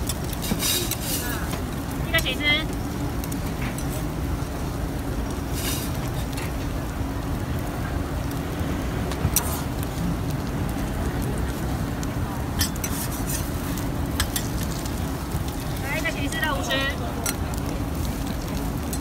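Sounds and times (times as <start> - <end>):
metal spatula scraping griddle: 0.2 - 1.5, 5.5 - 6.3, 9.3 - 9.7, 12.6 - 14.6.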